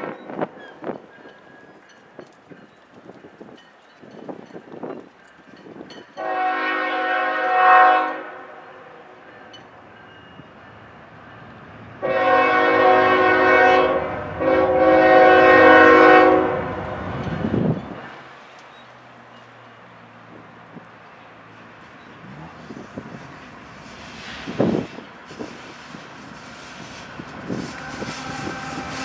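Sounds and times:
locomotive rumble: 0:00.0 - 0:29.0
locomotive air horn: 0:06.2 - 0:09.0, 0:12.0 - 0:16.8, 0:24.1 - 0:29.0.

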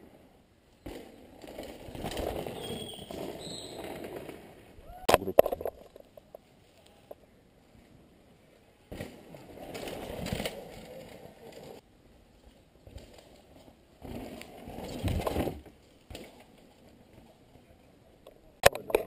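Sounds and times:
bike rattling: 0:00.1 - 0:07.1, 0:08.8 - 0:17.6
bike tyres crunching on dirt: 0:00.8 - 0:04.7.

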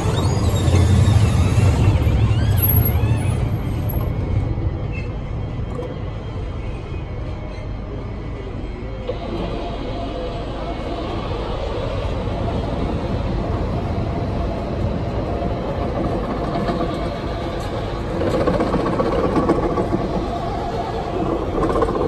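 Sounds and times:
tram rolling on rails: 0:00.0 - 0:22.0.

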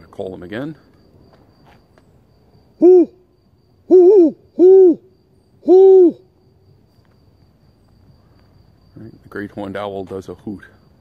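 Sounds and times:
man imitating owl hoots: 0:02.8 - 0:03.2, 0:03.8 - 0:06.3.

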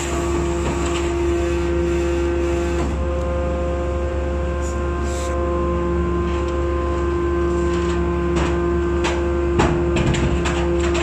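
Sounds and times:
scrap metal baler humming: 0:00.0 - 0:11.0
metal clanks and knocks: 0:07.5 - 0:11.0.

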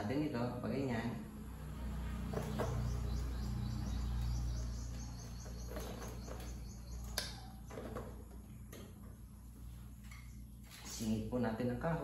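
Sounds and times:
steady low hum: 0:00.0 - 0:12.0
faint high chirping: 0:02.4 - 0:08.1.

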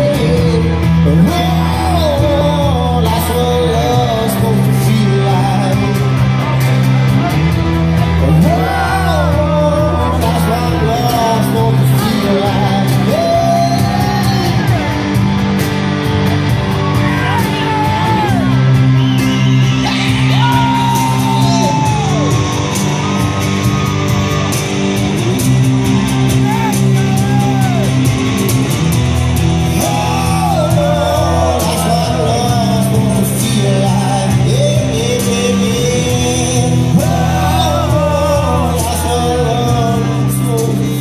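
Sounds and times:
man singing: 0:00.0 - 0:06.6, 0:07.2 - 0:15.0, 0:19.8 - 0:22.3, 0:29.5 - 0:41.0
electric guitars: 0:00.0 - 0:41.0
cajon beat: 0:15.4 - 0:37.1.

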